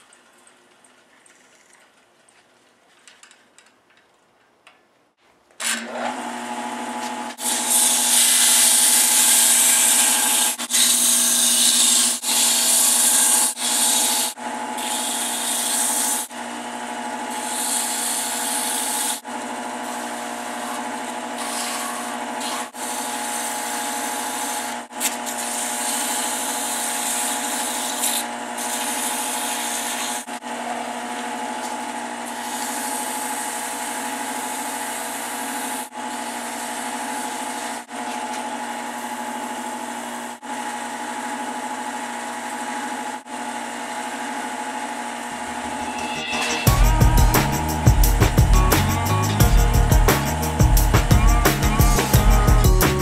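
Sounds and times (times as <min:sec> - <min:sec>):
wood lathe motor hum: 0:05.6 - 0:46.2
sandpaper hissing on wood: 0:07.4 - 0:16.3, 0:17.3 - 0:19.2, 0:21.4 - 0:30.2, 0:32.3 - 0:34.0.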